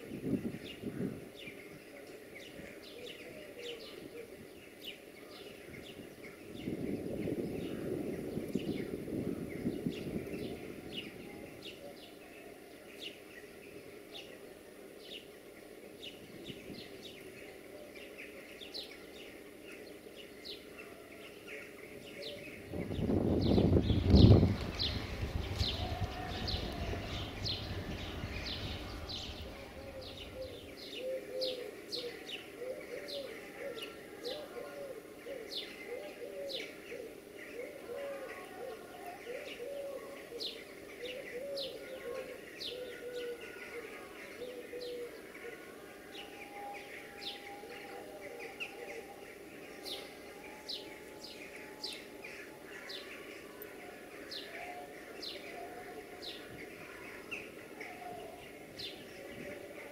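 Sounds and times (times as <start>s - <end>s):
small birds chirping: 0.2s - 59.9s
low hum: 22.6s - 31.0s
dove cooing: 23.5s - 45.7s, 47.5s - 49.2s.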